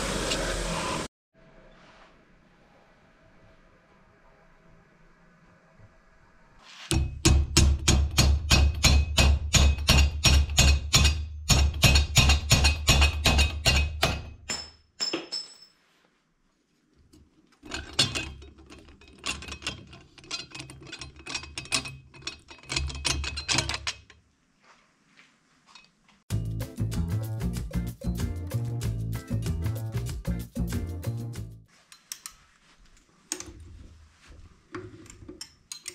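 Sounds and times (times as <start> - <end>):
hammer striking steel: 6.9 - 15.7.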